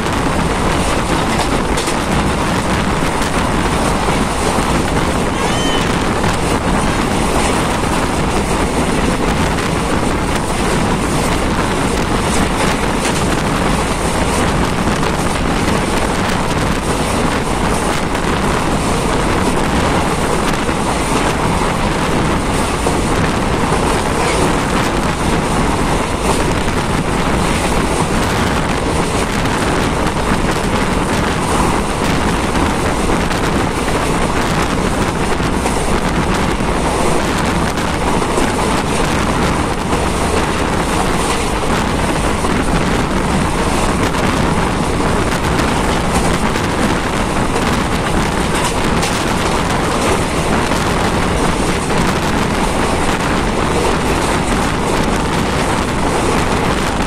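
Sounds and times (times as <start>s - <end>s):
vehicle road noise: 0.0s - 57.0s
wind rushing over microphone: 0.0s - 57.0s.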